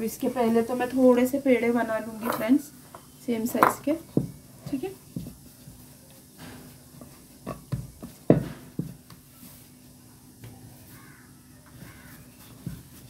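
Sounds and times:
hands rolling dough: 3.4s - 13.0s
dull knocks on wooden board: 3.6s - 4.4s, 7.5s - 9.1s.

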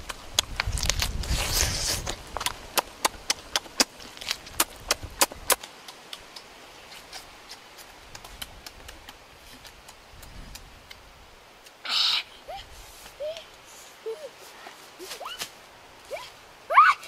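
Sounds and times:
person chewing meat clicks: 2.4s - 6.5s.

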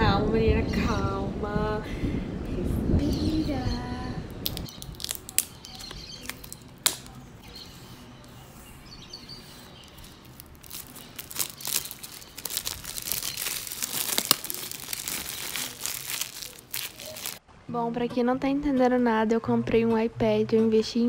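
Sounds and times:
plastic wrap crinkling: 4.3s - 7.2s, 9.4s - 17.4s.

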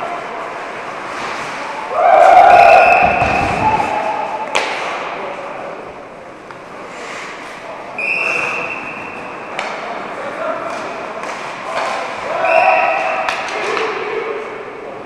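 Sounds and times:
hockey players shouting: 1.7s - 4.6s, 12.2s - 14.5s.

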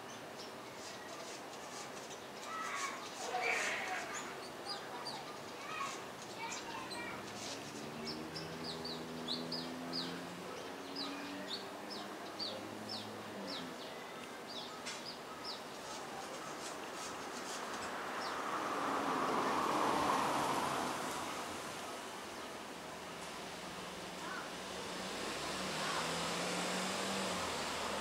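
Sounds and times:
broad rushing noise: 15.1s - 28.0s.

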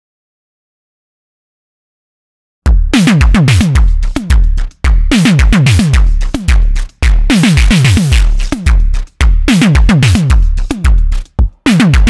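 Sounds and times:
synthesizer drum beat: 2.7s - 12.0s.

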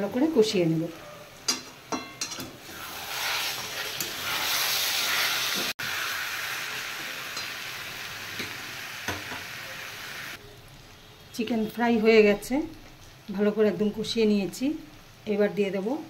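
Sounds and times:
curry sizzling in a metal pan: 0.0s - 16.0s
metal spatula scraping: 2.0s - 5.7s.

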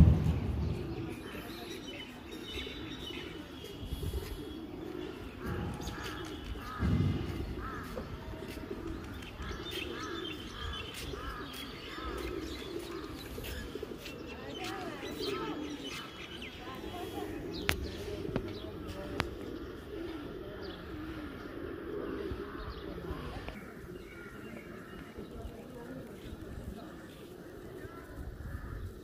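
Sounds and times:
pigeons cooing: 0.0s - 29.0s
small birds chirping: 0.0s - 29.0s
low thump: 6.8s - 7.6s.

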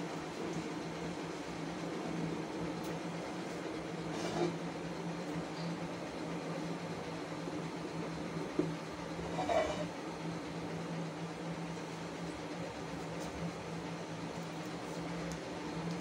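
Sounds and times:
steady low hum: 0.0s - 16.0s
metal lid scraping: 4.1s - 4.6s, 9.2s - 9.9s.

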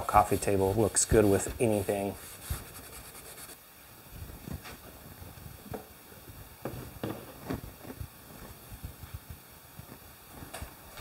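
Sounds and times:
faint rubbing: 0.0s - 3.6s
soft knocks and thumps: 6.6s - 8.1s.

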